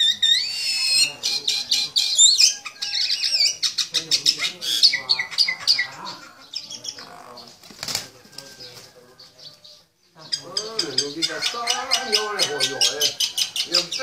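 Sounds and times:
sparrow chirping: 0:00.0 - 0:14.0
wings flapping: 0:07.4 - 0:08.9.

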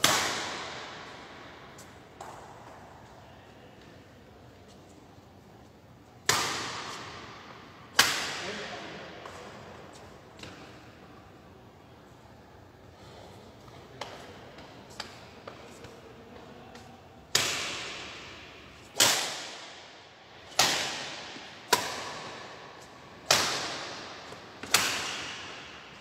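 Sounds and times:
racket hitting shuttlecock: 0:00.0 - 0:03.1, 0:06.2 - 0:09.7, 0:16.7 - 0:26.0.

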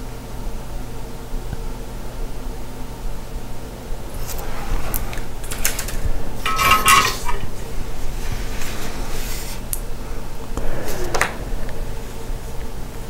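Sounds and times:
steady low hum: 0:00.0 - 0:13.0
metal tools clicking and clinking: 0:05.5 - 0:07.5
ringing metal clink: 0:06.4 - 0:07.5.

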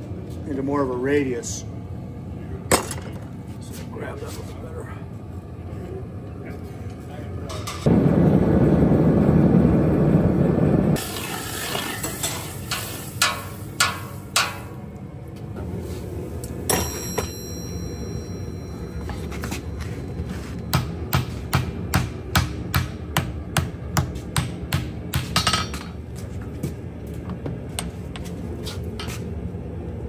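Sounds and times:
forge roaring: 0:04.6 - 0:16.7
steel tools clanking: 0:11.6 - 0:14.8
hammer ringing on anvil: 0:16.7 - 0:19.2.

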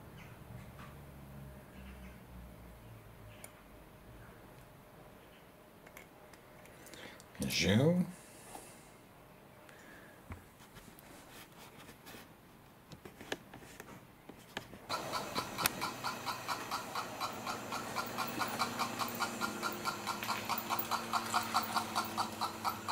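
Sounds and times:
small electric motor humming: 0:14.9 - 0:22.9.

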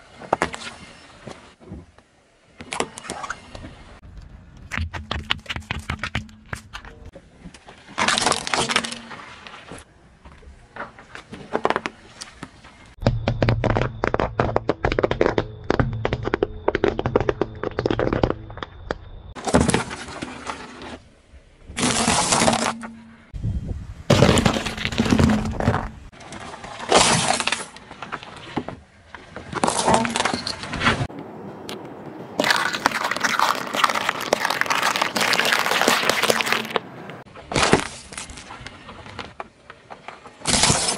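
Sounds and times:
tyre crushing small objects: 0:13.0 - 0:20.7, 0:21.8 - 0:23.0, 0:24.1 - 0:26.1, 0:32.4 - 0:39.4.

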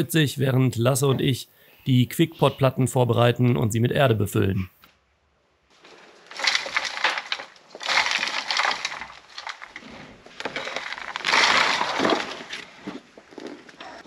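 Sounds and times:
soil crumbling rustle: 0:05.7 - 0:14.0.

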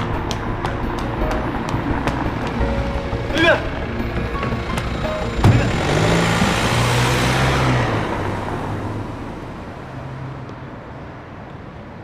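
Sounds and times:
car driving off: 0:00.0 - 0:11.2
thump: 0:05.4 - 0:05.7.

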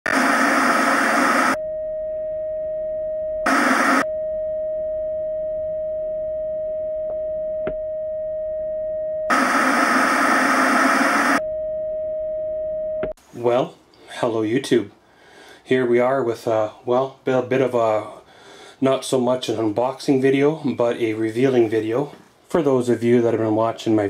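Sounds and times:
television static hiss: 0:00.0 - 0:01.6, 0:03.5 - 0:04.0, 0:09.3 - 0:11.4
steady test-pattern tone: 0:03.5 - 0:04.2, 0:09.3 - 0:13.1.

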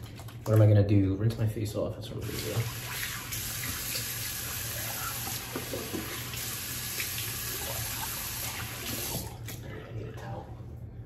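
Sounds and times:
tap running into sink: 0:05.2 - 0:06.3.

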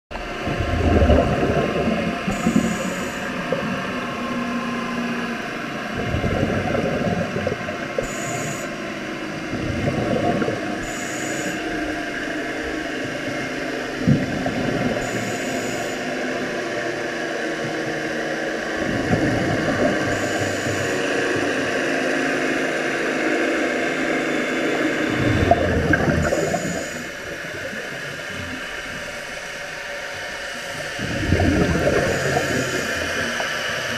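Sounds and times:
underwater hiss and hum: 0:00.1 - 0:33.9
exhaled bubbles rushing: 0:00.2 - 0:03.8, 0:05.9 - 0:08.1, 0:09.5 - 0:11.0, 0:18.8 - 0:20.2, 0:25.0 - 0:29.5, 0:30.7 - 0:33.9
regulator inhale hiss: 0:02.3 - 0:03.3, 0:08.0 - 0:08.8, 0:10.8 - 0:11.7, 0:26.2 - 0:27.4, 0:31.9 - 0:33.9.

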